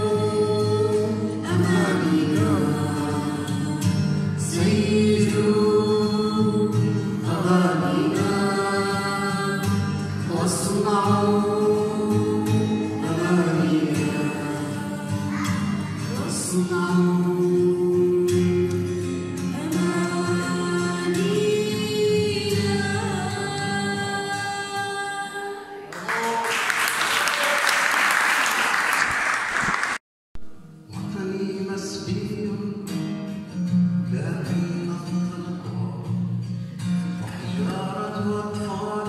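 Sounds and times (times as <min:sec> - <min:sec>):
acoustic guitar: 0:00.0 - 0:26.4, 0:29.6 - 0:39.0
girl singing: 0:10.8 - 0:16.4, 0:19.6 - 0:25.9
applause: 0:25.9 - 0:30.0.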